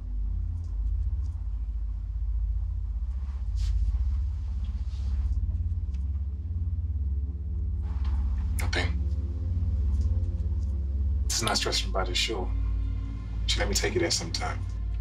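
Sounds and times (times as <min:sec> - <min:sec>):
held low tones: 0:00.0 - 0:15.0
low rumbling drone: 0:00.0 - 0:15.0
soft hissy sounds: 0:03.0 - 0:06.0.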